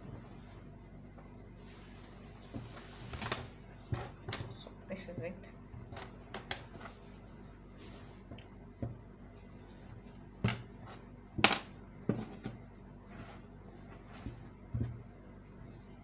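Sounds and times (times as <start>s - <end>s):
fabric rustling: 0.0s - 4.6s, 6.0s - 8.4s.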